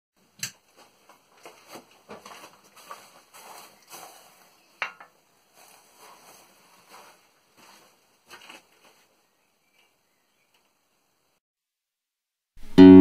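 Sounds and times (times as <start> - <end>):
faint rustling and tapping: 0.5 - 10.8.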